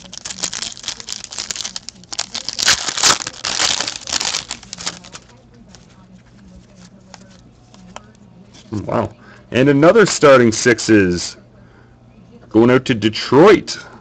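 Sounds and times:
foil wrapper tearing and crinkling: 0.0 - 5.4
cards being handled: 0.0 - 8.7.

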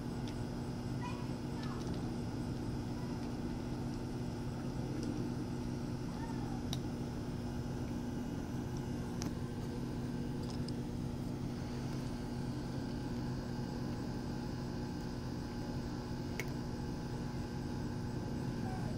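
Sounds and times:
low machine hum: 0.0 - 18.9.

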